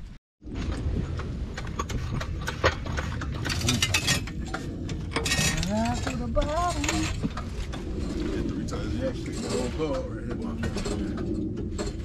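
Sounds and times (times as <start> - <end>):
metal tools clanking: 2.6 - 8.4, 9.0 - 12.0.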